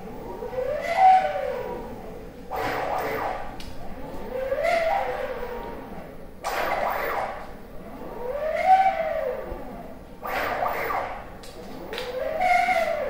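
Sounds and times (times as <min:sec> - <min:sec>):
cnc router motors whining: 0:00.0 - 0:13.0
harsh rushing noise: 0:02.5 - 0:03.9, 0:06.4 - 0:07.4, 0:10.2 - 0:11.4.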